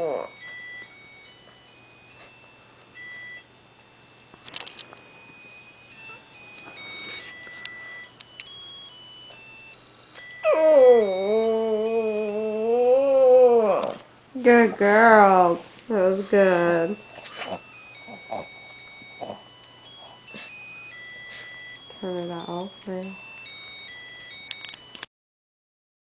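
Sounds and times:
electronic toy tune: 0:00.2 - 0:13.0, 0:16.4 - 0:25.1
dog howling: 0:10.4 - 0:14.0.

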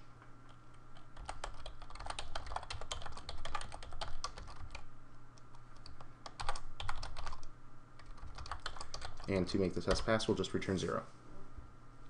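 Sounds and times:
keyboard typing: 0:00.5 - 0:04.8, 0:05.4 - 0:09.3.

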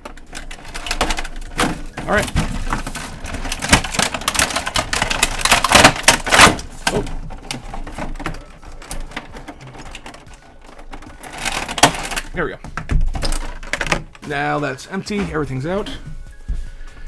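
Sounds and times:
plastic packaging crinkling: 0:00.0 - 0:12.4.

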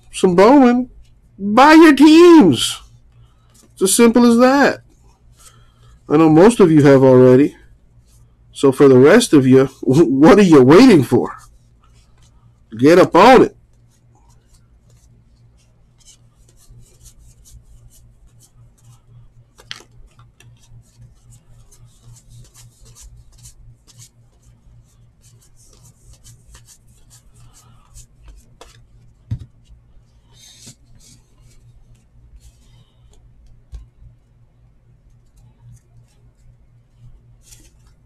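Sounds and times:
low steady hum: 0:00.0 - 0:38.0
cards flicking and rubbing: 0:10.8 - 0:12.3, 0:12.9 - 0:34.1, 0:35.2 - 0:38.0.

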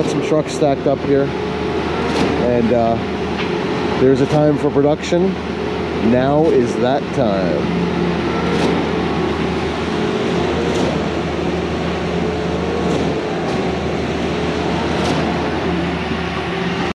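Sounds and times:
engine humming at high revs: 0:00.0 - 0:17.0
pump cylinders knocking: 0:12.8 - 0:13.8.

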